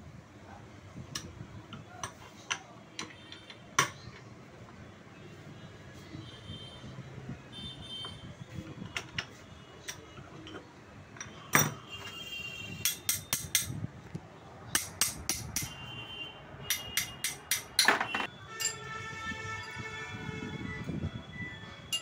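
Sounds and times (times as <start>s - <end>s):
metal parts clinking: 16.7s - 18.9s.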